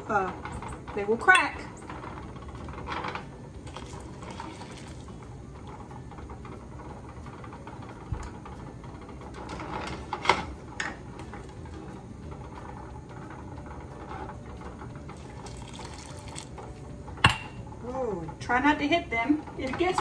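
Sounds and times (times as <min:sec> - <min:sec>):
water running off jar: 0:03.6 - 0:05.1, 0:15.2 - 0:16.5.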